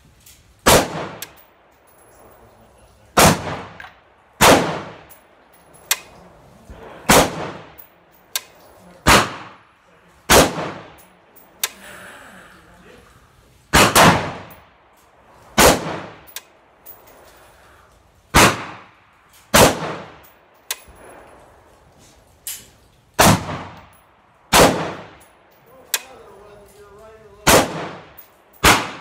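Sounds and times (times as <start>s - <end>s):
rifle shots echoing: 0.6s - 2.3s, 3.1s - 11.8s, 13.7s - 16.8s, 18.3s - 21.7s, 23.2s - 26.2s, 27.4s - 29.0s.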